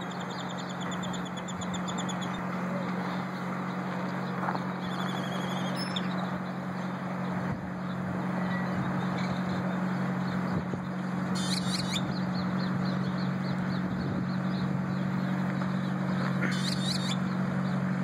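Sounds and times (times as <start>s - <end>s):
birds chirping: 0.0s - 18.0s
steady low hum: 0.0s - 18.0s.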